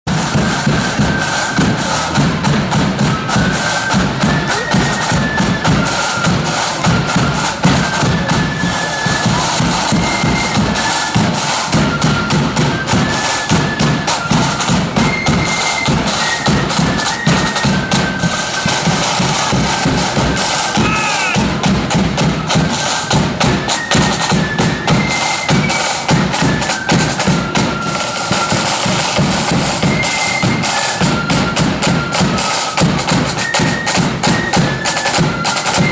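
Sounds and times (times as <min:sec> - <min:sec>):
shrill flute melody: 0:00.1 - 0:35.9
side drum rolls: 0:00.1 - 0:35.9.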